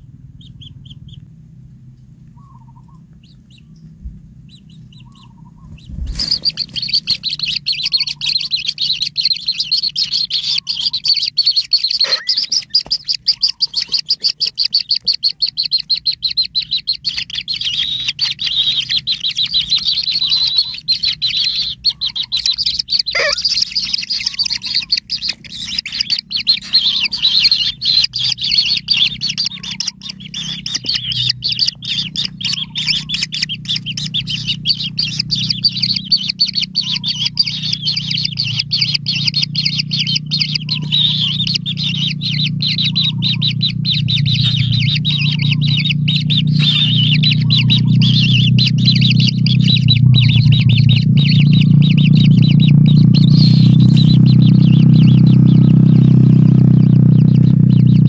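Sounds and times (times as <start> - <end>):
nestlings chirping rapidly: 0.3 - 1.2, 2.4 - 58.0
falling squeaks: 17.5 - 51.6.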